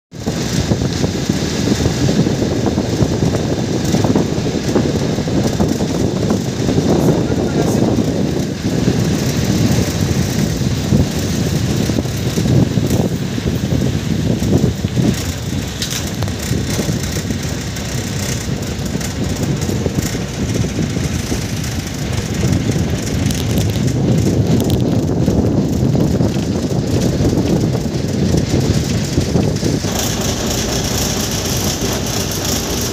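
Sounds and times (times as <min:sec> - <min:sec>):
low airport rumble: 0:00.1 - 0:32.9.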